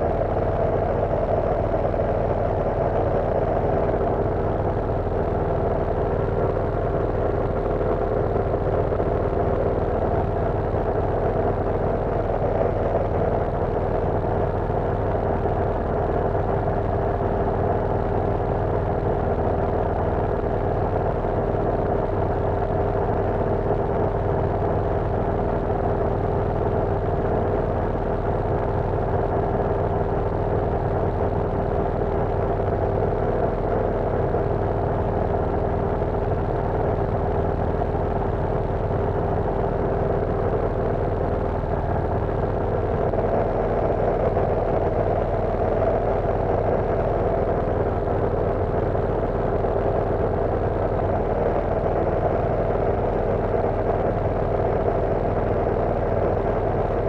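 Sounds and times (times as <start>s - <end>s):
propeller plane engine droning: 0.0s - 57.0s.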